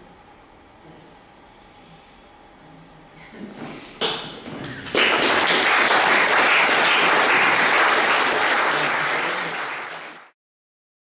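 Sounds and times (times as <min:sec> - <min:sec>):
audience applauding: 0:04.6 - 0:10.4.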